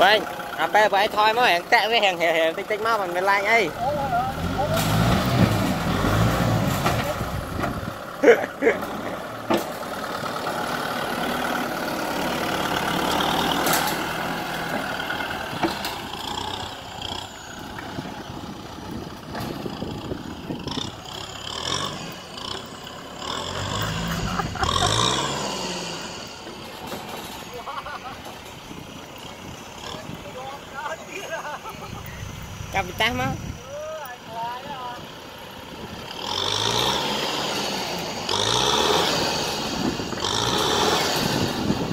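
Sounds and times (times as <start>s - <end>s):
tractor diesel engine under load: 0.0s - 41.9s
dozer blade pushing sand: 4.3s - 18.0s, 20.6s - 28.5s, 36.0s - 41.9s.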